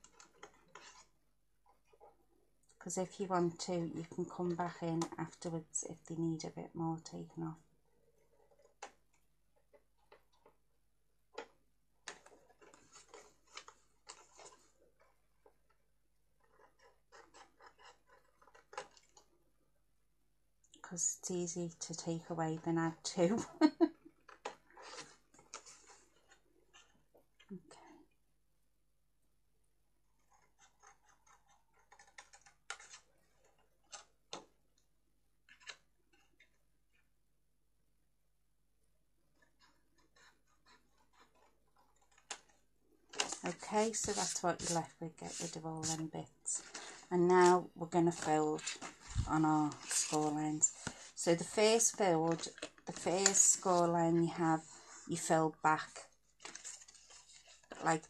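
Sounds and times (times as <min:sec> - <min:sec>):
scissors snipping cardstock: 0:43.2 - 0:46.1
scissors cutting cardstock: 0:43.2 - 0:53.9.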